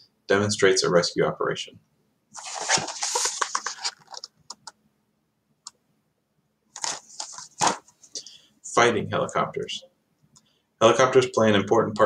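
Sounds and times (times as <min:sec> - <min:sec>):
book pages rustling: 0:02.4 - 0:04.7, 0:06.8 - 0:08.1.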